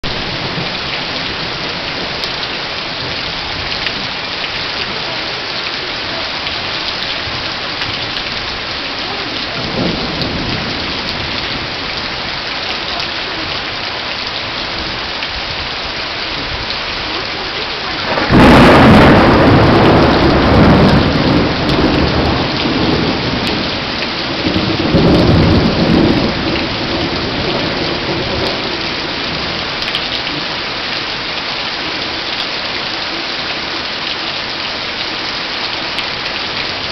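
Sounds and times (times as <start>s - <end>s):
steady rain falling: 0.0s - 36.9s
faint rumble of thunder: 6.8s - 12.3s, 18.0s - 30.6s
loud thunderclap rumbling: 6.9s - 12.3s, 16.4s - 30.5s.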